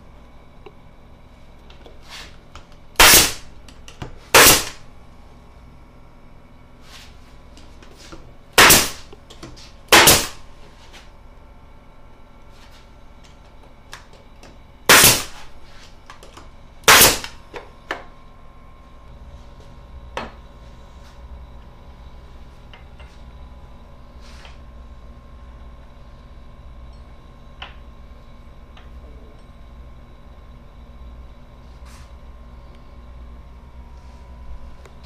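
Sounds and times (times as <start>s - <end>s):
pneumatic nail gun firing: 3.0s - 3.5s, 4.3s - 4.8s, 8.6s - 9.1s, 9.9s - 10.4s, 14.9s - 15.5s, 16.8s - 17.4s.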